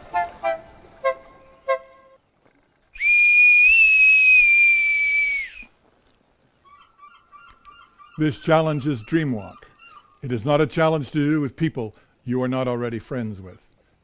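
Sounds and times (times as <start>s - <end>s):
plucked background music: 0.0s - 2.0s.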